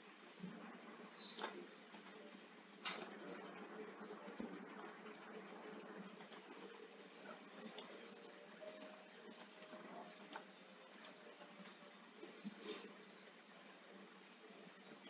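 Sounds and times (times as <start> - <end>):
low steady hum: 0.0 - 15.0
computer mouse clicks: 1.2 - 2.2, 2.8 - 3.5, 4.2 - 5.2, 6.2 - 6.6, 7.2 - 12.6.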